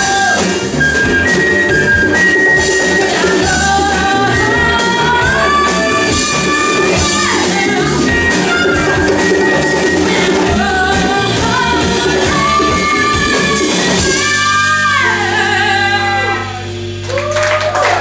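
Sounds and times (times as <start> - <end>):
live funk band playing: 0.0 - 18.0
woman singing: 2.6 - 16.7
audience cheering: 17.0 - 18.0.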